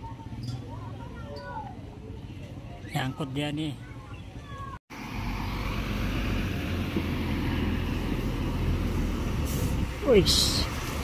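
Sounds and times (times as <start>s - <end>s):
diesel truck engine rumbling: 4.9s - 11.0s.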